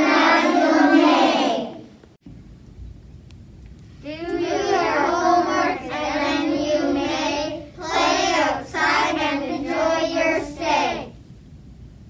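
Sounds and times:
young children singing: 0.0 - 1.9, 4.0 - 11.2.

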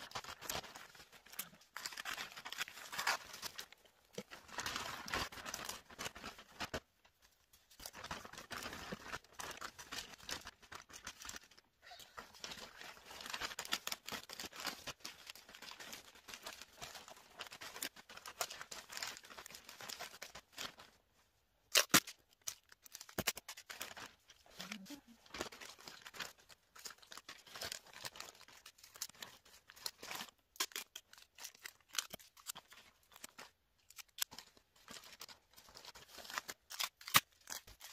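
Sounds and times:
wrapping paper crinkling: 0.0 - 21.0, 21.7 - 37.9
paper tearing: 24.6 - 37.9.

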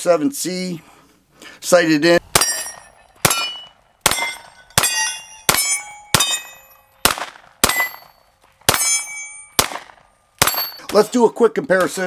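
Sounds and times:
bullet clanging on steel target: 2.3 - 7.0, 7.6 - 9.8, 10.4 - 12.0
pistol shots: 2.3 - 11.0.

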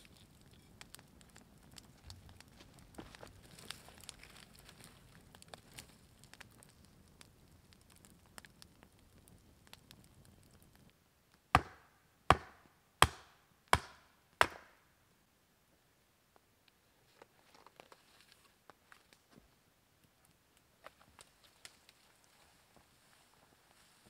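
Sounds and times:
campfire crackling: 0.0 - 24.0
blade chopping into wood: 11.6 - 14.7.

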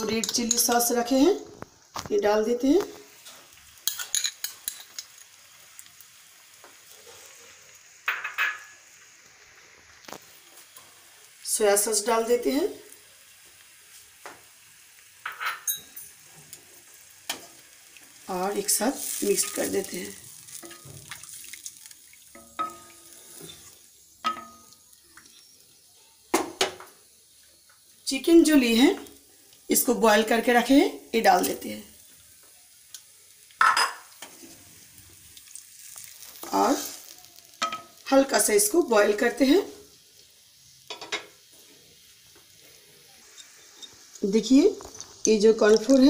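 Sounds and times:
faint sizzling hiss: 0.0 - 46.0
spatula stirring soup in a wok: 15.7 - 25.6, 34.1 - 38.0.

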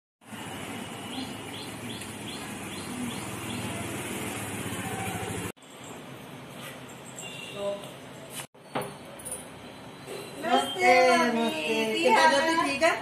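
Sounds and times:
motor scooter engine running: 0.3 - 5.6
bird chirping: 1.0 - 4.1.

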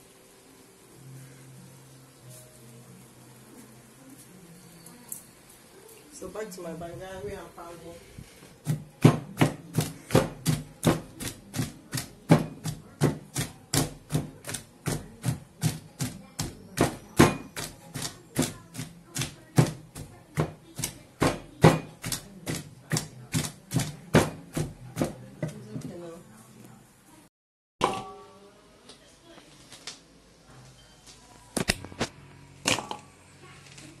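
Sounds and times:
pestle pounding in a mortar: 8.6 - 26.0.

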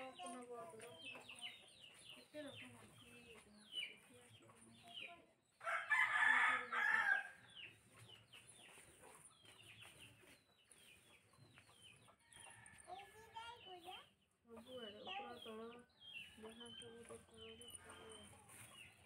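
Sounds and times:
rooster crowing: 5.6 - 7.4
bird calls chirping: 7.1 - 19.0.

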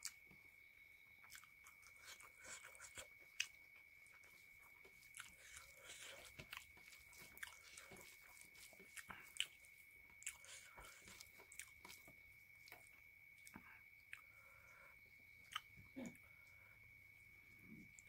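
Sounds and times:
chewing: 1.2 - 16.7
fingers squishing rice: 1.3 - 14.4.

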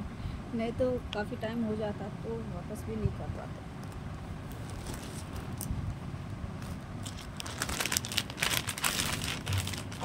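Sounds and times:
low steady hum: 0.0 - 10.0
plastic bag crinkling: 4.5 - 5.7, 6.6 - 10.0.

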